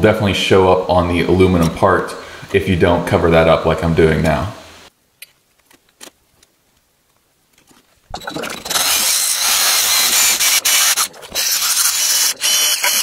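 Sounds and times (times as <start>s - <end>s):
drill sanding drum grinding filler: 8.2s - 13.0s.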